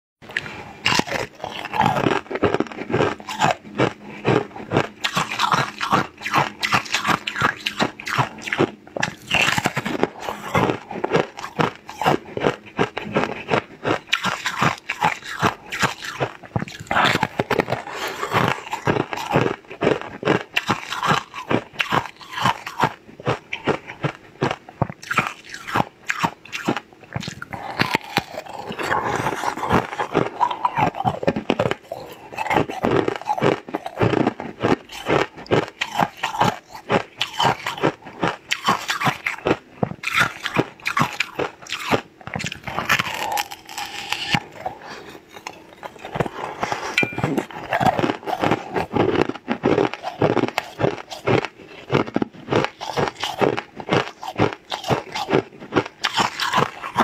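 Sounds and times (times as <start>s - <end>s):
crunchy treat being chewed: 0.2s - 57.0s.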